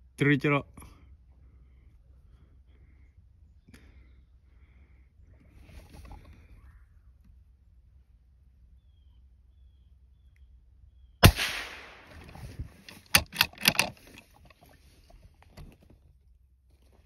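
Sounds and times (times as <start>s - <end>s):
rifle shot with echo: 11.2s - 12.4s.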